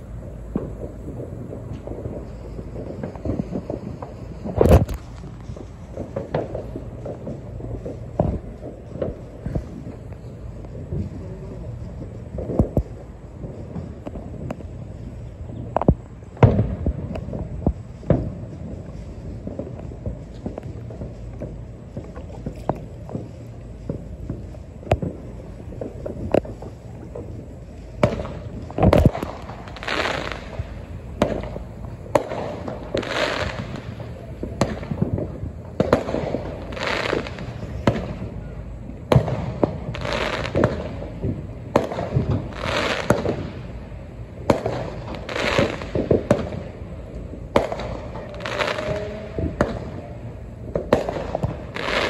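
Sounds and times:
fireworks bangs and pops: 0.0 - 52.0
fireworks hiss: 0.0 - 52.0.

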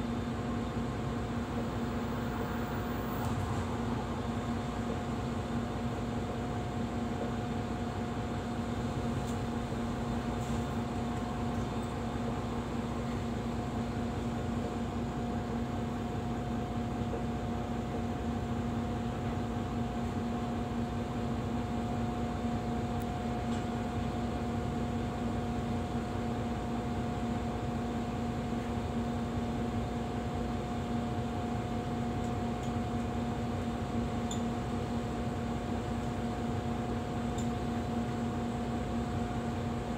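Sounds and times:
bus engine idling: 0.0 - 39.9.

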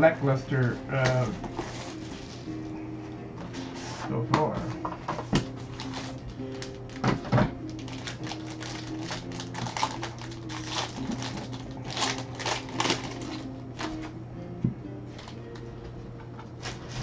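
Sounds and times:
foil wrapper crinkling and tearing: 5.6 - 7.0, 7.6 - 14.1.

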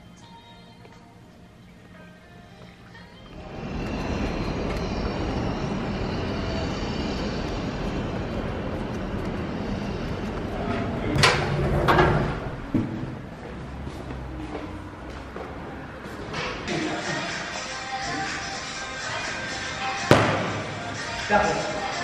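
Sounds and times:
traffic rumble: 3.3 - 17.5
lift metal doors clanking: 10.4 - 13.1.

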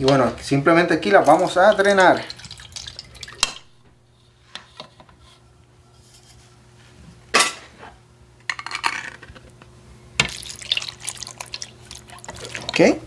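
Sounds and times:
juice trickling into bowl: 1.0 - 3.7, 10.2 - 13.0.

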